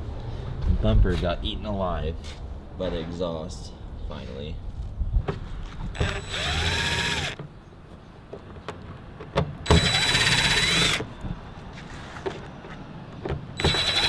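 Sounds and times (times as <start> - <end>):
impact driver motor whine: 6.0 - 7.4, 9.7 - 11.1, 13.6 - 14.0.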